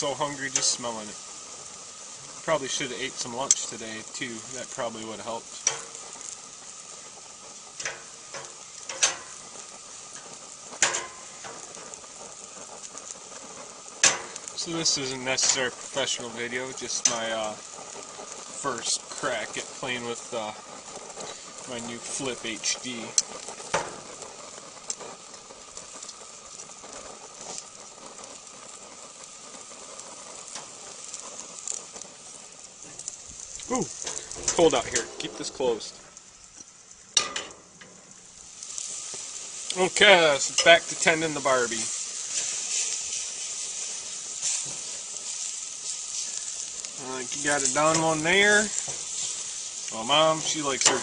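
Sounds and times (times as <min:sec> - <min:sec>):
steaks sizzling on a grill: 0:00.0 - 0:51.0
sharp fat pops: 0:10.8 - 0:12.0, 0:14.0 - 0:14.6, 0:23.2 - 0:25.1.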